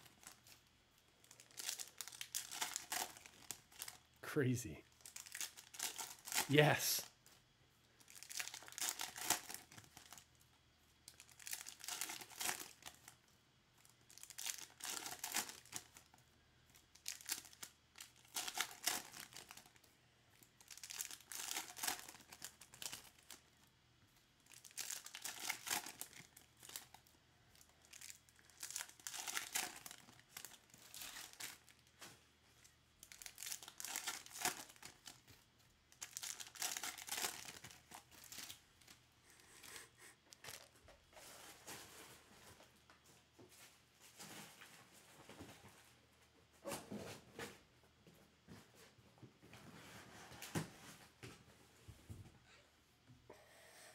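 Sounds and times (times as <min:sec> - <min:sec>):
foil wrappers crinkling and tearing: 0:00.0 - 0:00.6, 0:01.2 - 0:04.1, 0:04.9 - 0:06.5, 0:08.0 - 0:10.3, 0:11.0 - 0:13.2, 0:13.8 - 0:23.6, 0:24.4 - 0:32.2, 0:33.0 - 0:39.4.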